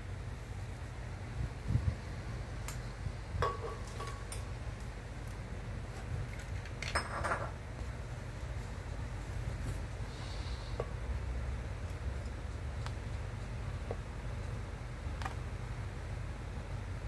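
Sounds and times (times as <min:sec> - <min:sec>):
kitchenware clinking and clattering: 0:06.8 - 0:07.6.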